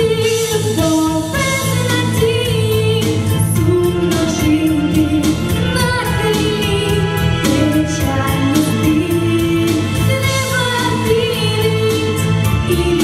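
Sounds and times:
girl singing into microphone: 0:00.0 - 0:13.0
music with steady beat: 0:00.0 - 0:13.0.

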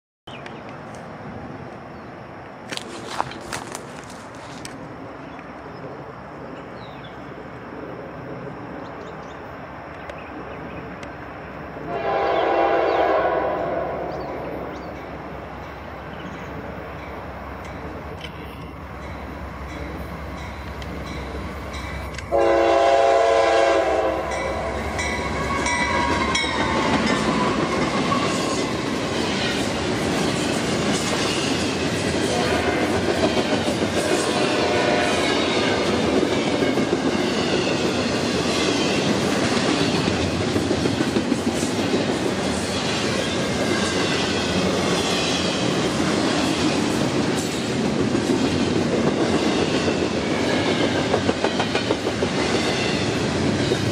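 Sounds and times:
train rushing past: 0:10.9 - 0:53.9
locomotive air horn: 0:11.9 - 0:14.2, 0:22.3 - 0:24.7, 0:32.3 - 0:32.9, 0:34.0 - 0:35.6.

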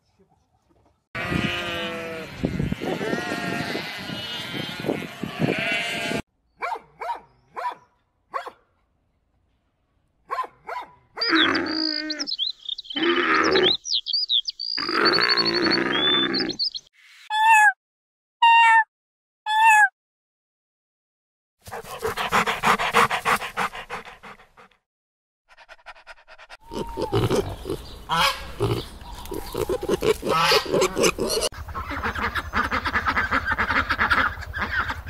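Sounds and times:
sheep bleating: 0:01.2 - 0:06.2, 0:26.7 - 0:31.5
puppy yipping and barking: 0:06.6 - 0:08.6
birdsong: 0:11.2 - 0:17.6, 0:26.6 - 0:35.0.

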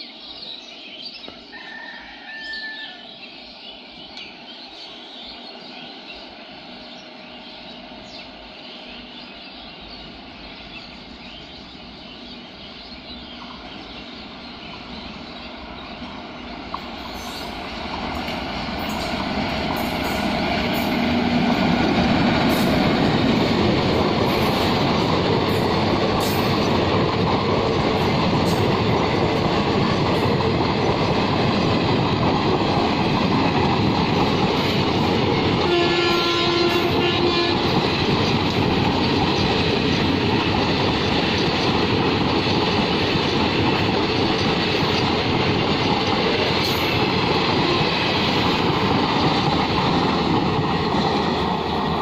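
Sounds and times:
train wheels rushing on rails: 0:00.0 - 0:52.0
train horn: 0:35.6 - 0:38.0, 0:47.6 - 0:48.1.

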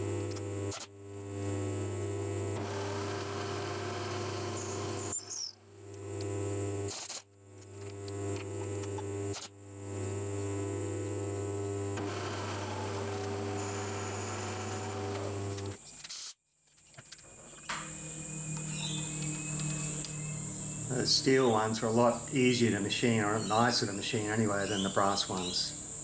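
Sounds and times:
milling machine cutting steel: 0:00.1 - 0:15.8.

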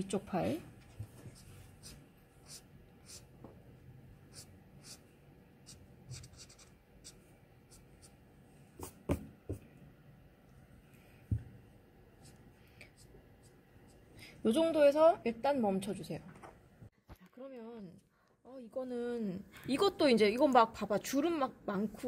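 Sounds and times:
marker scratching on paper: 0:00.8 - 0:03.3, 0:04.3 - 0:08.2, 0:08.8 - 0:09.2, 0:12.2 - 0:14.0.

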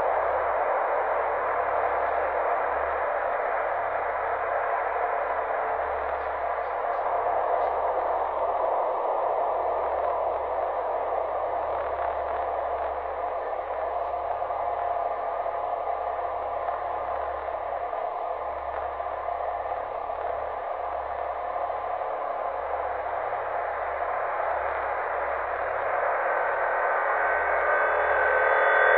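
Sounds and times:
static-like hiss: 0:00.0 - 0:28.9
low hum: 0:23.3 - 0:28.9.

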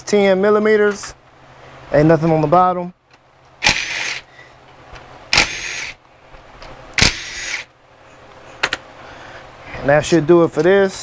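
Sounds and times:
cordless power tool whining: 0:03.6 - 0:04.4, 0:05.3 - 0:06.0, 0:07.0 - 0:07.7.

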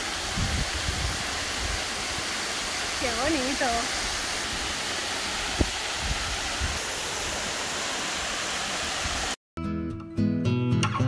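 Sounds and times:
water rushing over rocks: 0:00.0 - 0:09.4
acoustic guitar music: 0:09.6 - 0:11.0.

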